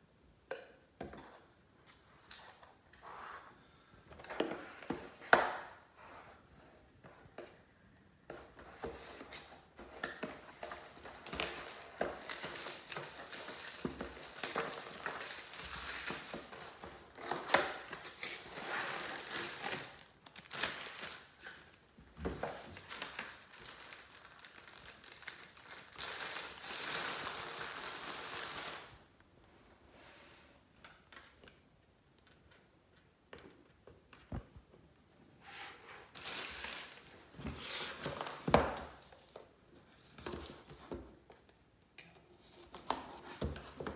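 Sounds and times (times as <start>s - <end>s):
plastic bag crinkling: 18.1s - 21.8s, 22.5s - 29.0s.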